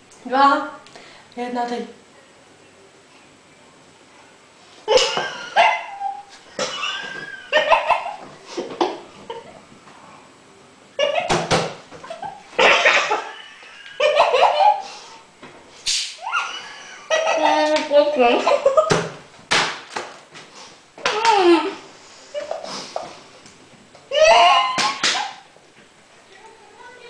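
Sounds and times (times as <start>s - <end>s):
people coughing and spluttering: 4.9s - 5.6s, 12.6s - 13.4s
people laughing: 6.6s - 9.6s, 12.0s - 14.9s, 16.3s - 19.0s.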